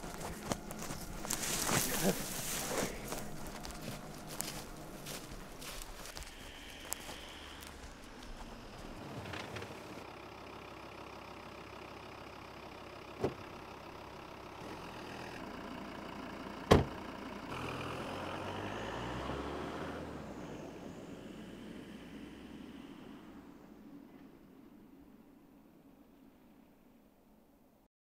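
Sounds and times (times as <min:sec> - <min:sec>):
car engine idling: 0:00.0 - 0:27.5
car door slam: 0:16.7 - 0:17.0.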